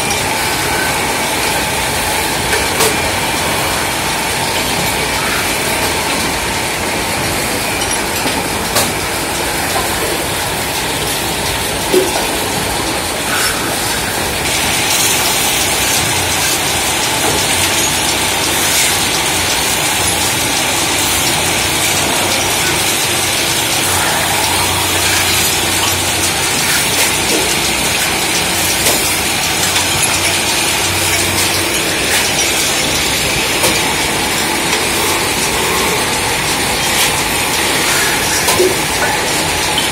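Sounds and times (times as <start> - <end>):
lathes running: 0.0 - 39.9
tools scraping spinning metal: 13.2 - 38.9.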